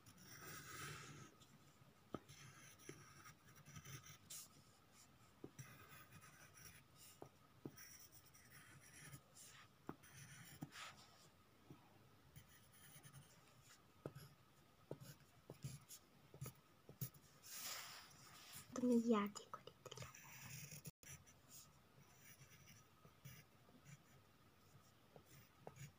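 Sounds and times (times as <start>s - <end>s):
ballpoint pen scratching paper: 0.0s - 1.3s, 2.1s - 4.6s, 5.4s - 11.0s, 12.4s - 13.4s, 19.8s - 24.1s, 25.2s - 25.9s.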